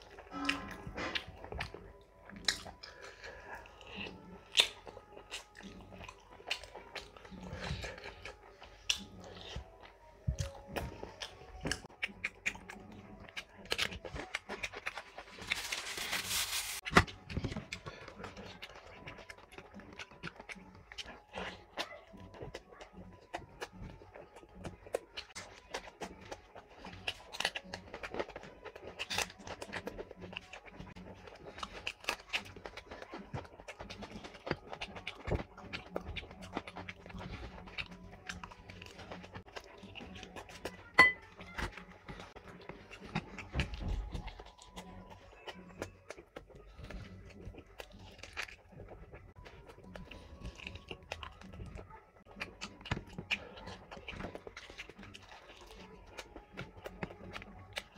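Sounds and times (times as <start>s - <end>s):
wet chewing and lip smacking: 0.0s - 57.9s
bread ripping: 13.6s - 21.6s.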